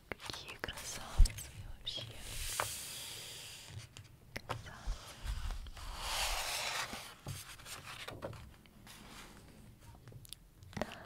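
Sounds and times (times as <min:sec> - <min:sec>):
book page turning: 0:04.8 - 0:09.5.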